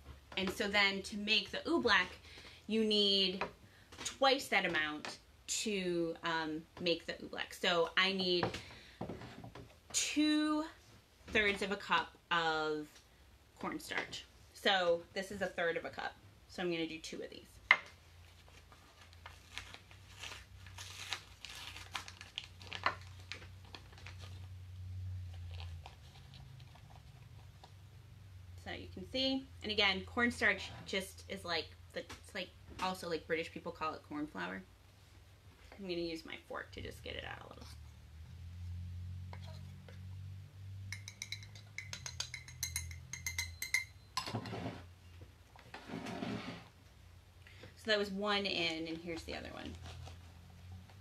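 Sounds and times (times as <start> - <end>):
cardboard box tearing and crinkling: 19.3 - 23.3
fork clinking on a measuring cup: 40.9 - 44.3.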